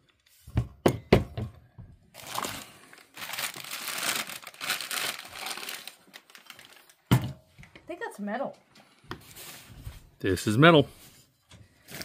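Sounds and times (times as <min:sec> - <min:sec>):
paper crinkling and rustling: 0:02.2 - 0:07.1, 0:11.7 - 0:12.0.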